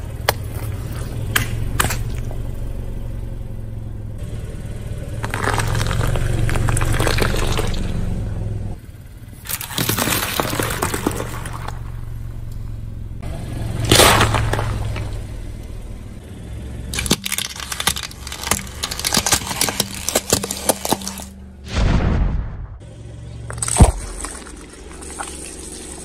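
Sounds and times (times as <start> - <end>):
loud wet crunch: 0.0 - 2.4, 5.2 - 8.0, 9.4 - 12.0, 13.8 - 15.2, 17.0 - 21.8, 23.5 - 26.0
low engine hum: 0.0 - 26.0
tyre crushing objects: 5.2 - 7.8, 9.5 - 11.8, 13.8 - 15.1, 17.0 - 21.4, 23.5 - 25.5.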